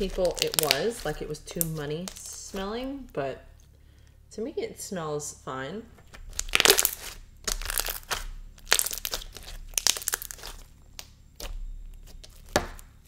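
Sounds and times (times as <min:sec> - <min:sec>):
slime popping and crackling: 0:00.0 - 0:03.2, 0:06.1 - 0:13.0.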